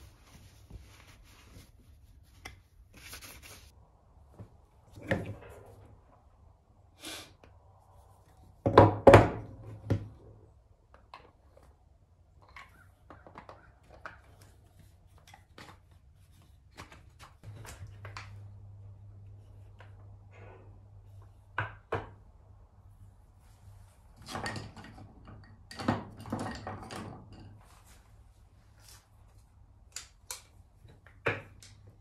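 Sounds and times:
wooden thunks and knocks: 0:08.6 - 0:10.2.

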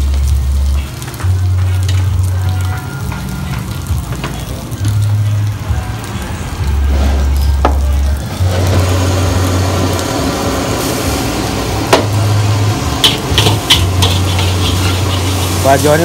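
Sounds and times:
faint sizzle: 0:00.0 - 0:16.0
wok burner rumbling: 0:00.0 - 0:16.0.

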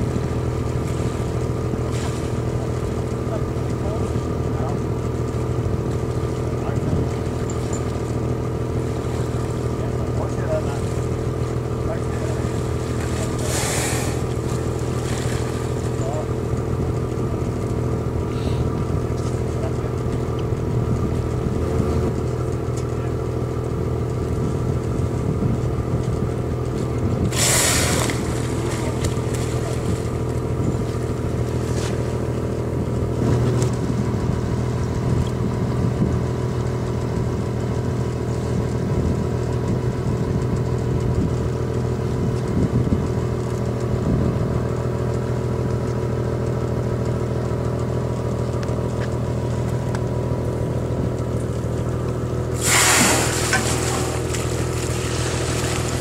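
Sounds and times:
boat engine idling: 0:00.0 - 0:56.0
whale blowing: 0:13.4 - 0:15.6, 0:27.2 - 0:29.5, 0:52.5 - 0:56.0.

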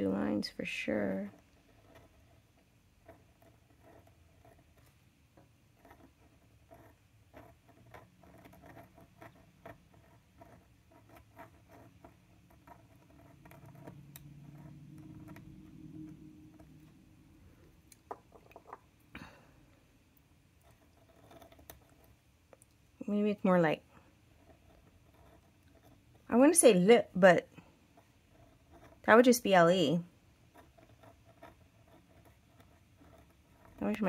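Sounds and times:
faint low hum: 0:00.0 - 0:34.0
pen nib scratching on card: 0:01.2 - 0:05.1, 0:05.7 - 0:17.6, 0:20.6 - 0:22.2, 0:23.9 - 0:26.8, 0:27.6 - 0:34.0.

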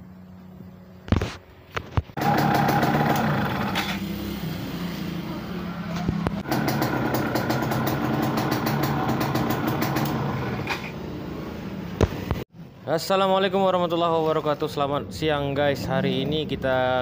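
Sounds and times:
two-stroke engine running: 0:02.2 - 0:04.2, 0:06.3 - 0:10.7.

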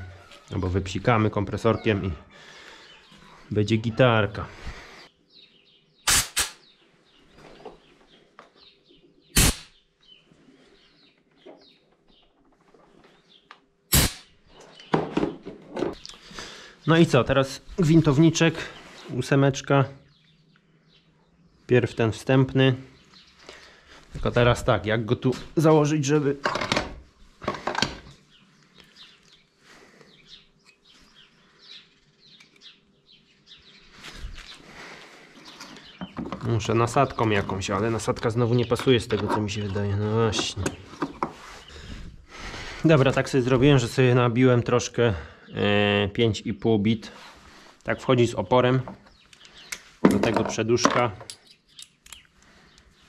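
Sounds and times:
birds chirping: 0:00.0 - 0:53.0
loud bursts of noise: 0:06.1 - 0:06.6, 0:09.4 - 0:09.7, 0:13.9 - 0:14.3.

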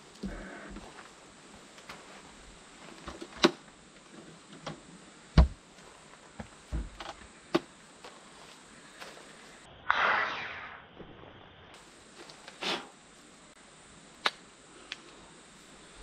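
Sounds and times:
heavy low thump: 0:05.4 - 0:05.6.

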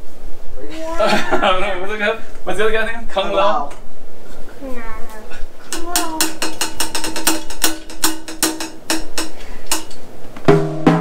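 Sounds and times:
drumsticks clicking: 0:05.7 - 0:10.0
tom drum ringing: 0:05.7 - 0:11.0.

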